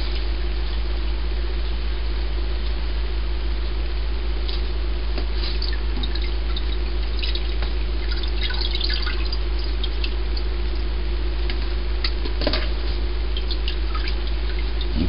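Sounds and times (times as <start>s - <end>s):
steady low hum: 0.0s - 15.0s
liquid dripping through cloth strainer: 5.5s - 12.3s, 13.3s - 15.0s.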